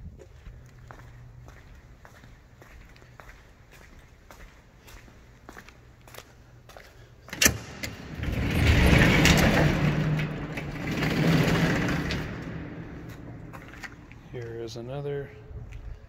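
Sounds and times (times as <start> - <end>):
overhead door rattling up: 7.4 - 14.1.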